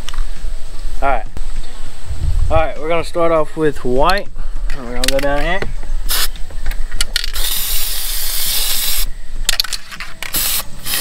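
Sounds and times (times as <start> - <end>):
aerosol spray can hissing: 6.1 - 6.4, 7.4 - 9.1, 10.3 - 11.0.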